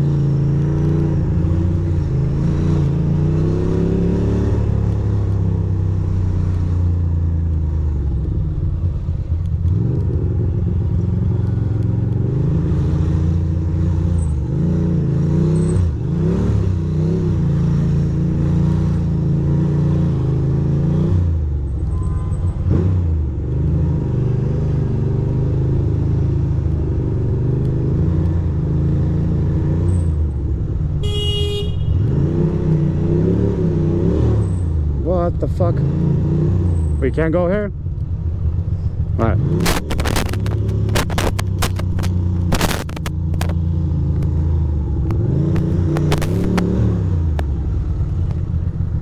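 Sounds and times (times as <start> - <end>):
motorcycle engine revving: 0.0 - 21.5, 31.0 - 49.0
vehicle horn honking: 21.9 - 22.7, 31.0 - 32.2.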